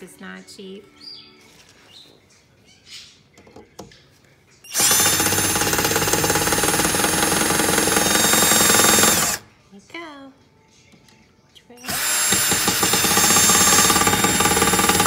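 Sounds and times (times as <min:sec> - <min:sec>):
cordless drill motor running: 0:04.7 - 0:09.4, 0:11.9 - 0:15.0.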